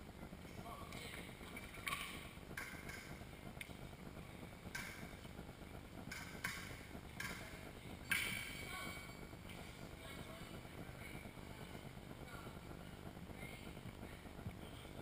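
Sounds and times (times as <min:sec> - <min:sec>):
hiss-like noise: 0:00.0 - 0:15.0.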